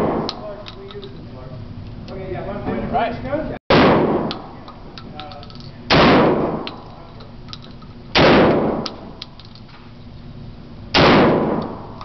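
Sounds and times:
shotgun blasts echoing indoors: 0:00.0 - 0:00.6, 0:03.7 - 0:04.6, 0:05.9 - 0:06.9, 0:08.1 - 0:09.2, 0:10.9 - 0:12.0.

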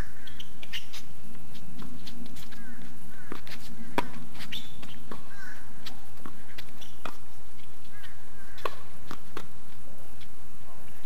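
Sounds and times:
tennis ball bouncing on hard court: 0:03.2 - 0:09.7.

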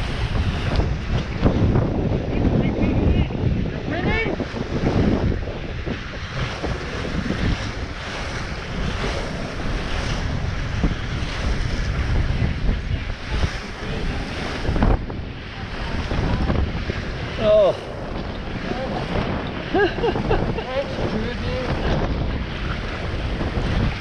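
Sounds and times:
water splashing along a hull: 0:00.0 - 0:24.0
wind buffeting microphone: 0:00.0 - 0:24.0.

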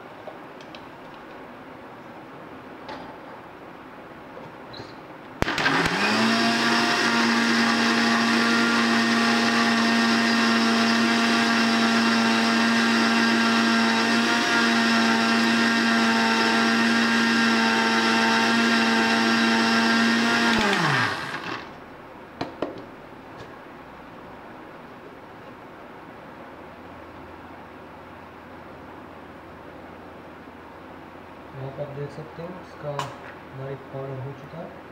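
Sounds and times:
mixer grinder running: 0:05.4 - 0:21.8.

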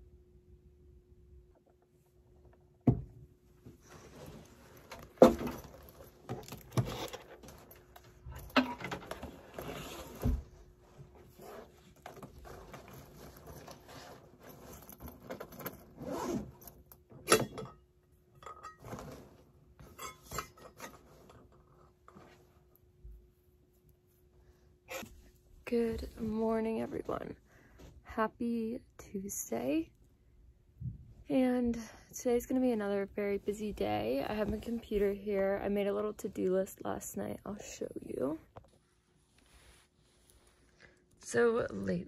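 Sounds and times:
faint steady hum: 0:00.0 - 0:42.0
backpack rustling and scraping: 0:03.8 - 0:16.8, 0:18.8 - 0:20.0.

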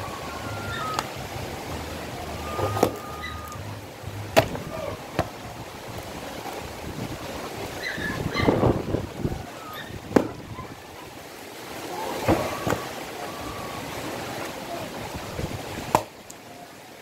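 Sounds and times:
wind noise on microphone: 0:00.0 - 0:10.9, 0:15.0 - 0:16.0
blade chopping wood: 0:04.4 - 0:04.6, 0:15.9 - 0:16.1.

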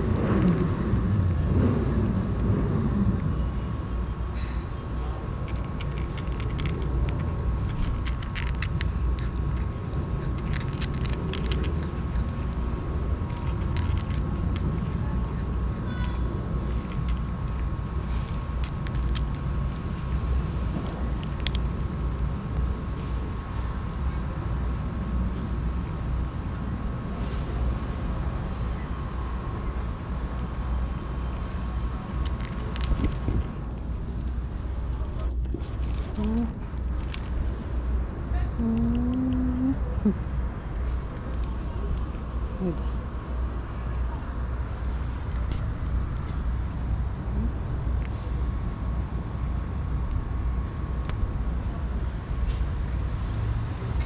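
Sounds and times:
cat chewing and lapping: 0:00.0 - 0:24.8, 0:28.9 - 0:43.0
low outdoor rumble: 0:00.0 - 0:54.0.

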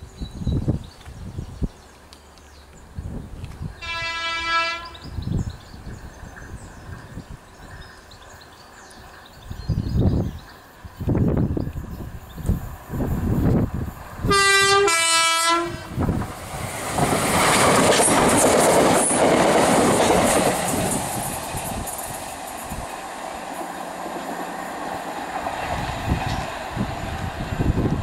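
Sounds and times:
train passing at speed: 0:01.9 - 0:28.0
two-tone train horn: 0:03.8 - 0:05.1, 0:14.2 - 0:16.1.

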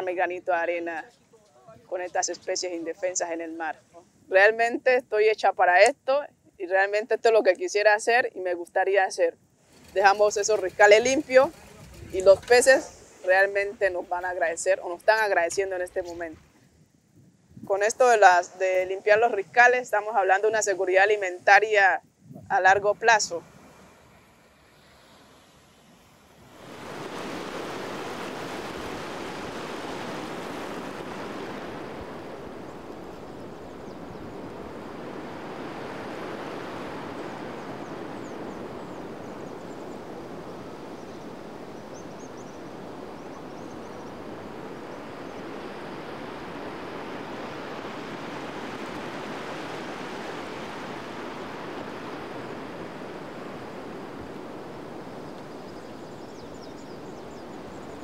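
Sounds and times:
ocean surf washing onto beach: 0:09.6 - 0:16.6, 0:20.2 - 0:58.0.

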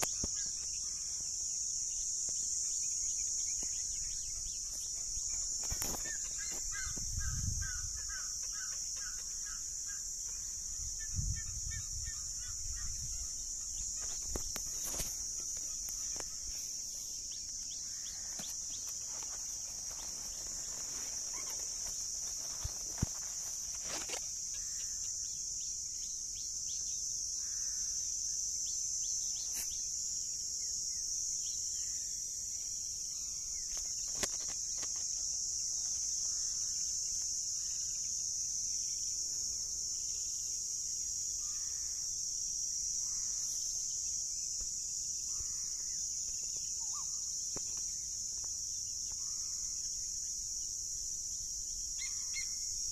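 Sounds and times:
insects shrilling: 0:00.0 - 0:26.8, 0:43.0 - 0:52.9.

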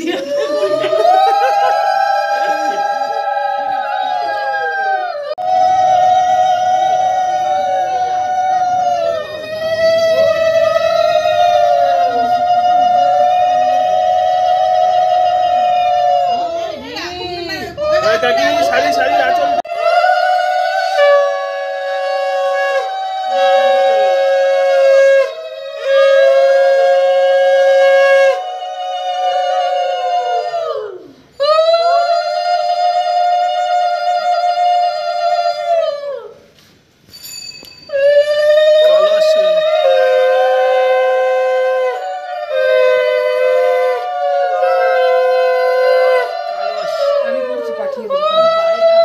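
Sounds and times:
conch shells blown: 0:20.1 - 0:28.5.

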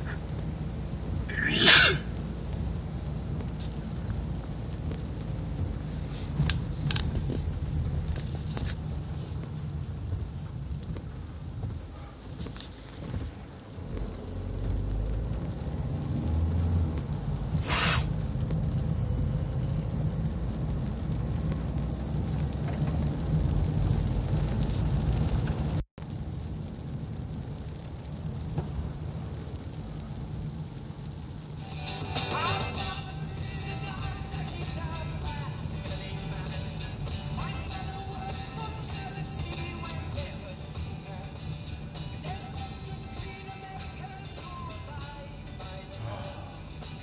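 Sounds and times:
road and engine rumble: 0:00.0 - 0:47.0
brief swish: 0:17.6 - 0:18.1.

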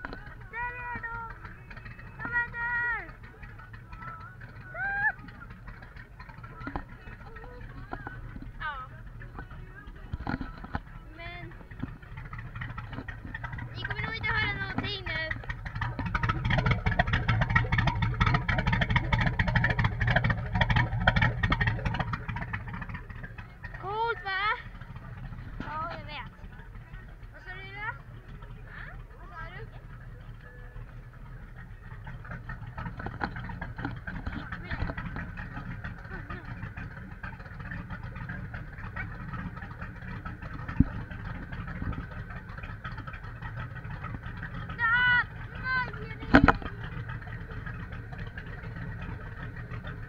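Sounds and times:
boat engine drone: 0:00.0 - 0:50.0
hull slapping water: 0:00.0 - 0:50.0
wind buffeting microphone: 0:31.9 - 0:50.0.

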